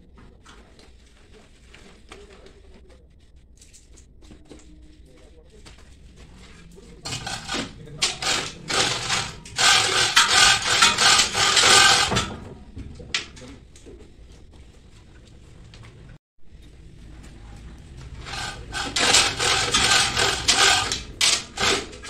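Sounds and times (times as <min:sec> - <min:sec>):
rubbing and scraping: 0:06.2 - 0:13.4, 0:18.0 - 0:22.0.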